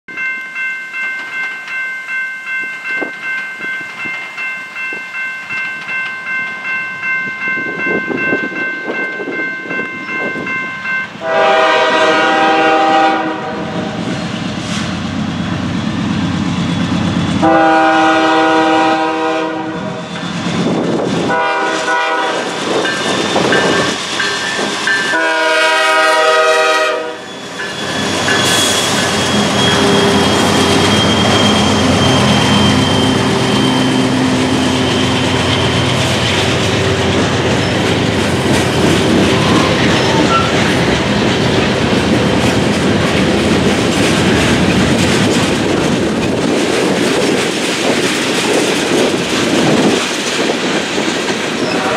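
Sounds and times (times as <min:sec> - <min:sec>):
diesel locomotive engines passing: 0:00.1 - 0:51.9
train air horn blasts: 0:11.2 - 0:14.0, 0:17.4 - 0:20.1, 0:21.2 - 0:22.6, 0:25.0 - 0:27.4, 0:51.6 - 0:51.9
train wheels clicking over rail joints: 0:20.1 - 0:25.9, 0:27.2 - 0:51.9.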